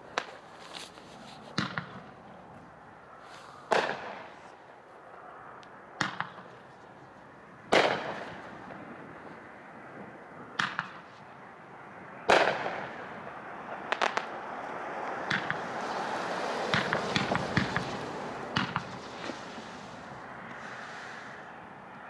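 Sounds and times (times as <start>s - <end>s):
firework cracks and pops: 0.0s - 2.2s, 7.7s - 8.8s, 10.6s - 11.2s, 12.3s - 13.0s, 13.9s - 14.4s, 15.0s - 20.1s
firework hiss: 16.0s - 21.5s.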